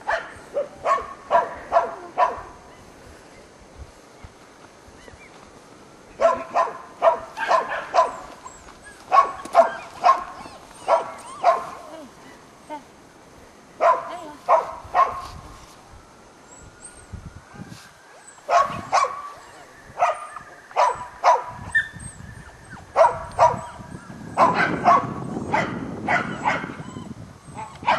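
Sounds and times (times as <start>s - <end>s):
dog barking: 0.0s - 2.6s, 6.2s - 8.3s, 9.1s - 11.9s, 13.8s - 15.2s, 18.5s - 21.9s, 23.0s - 23.8s, 24.4s - 26.8s, 27.6s - 27.9s.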